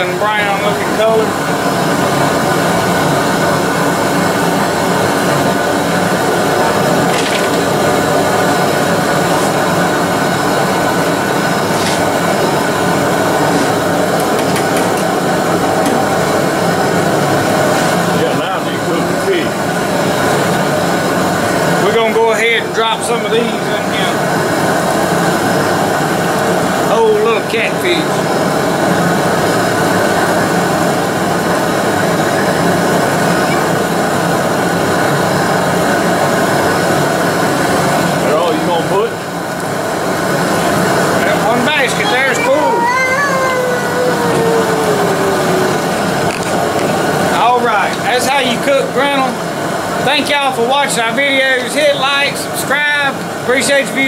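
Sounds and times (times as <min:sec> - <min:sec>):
deep fryer burner noise: 0:00.0 - 0:54.0
low hum: 0:43.1 - 0:47.3.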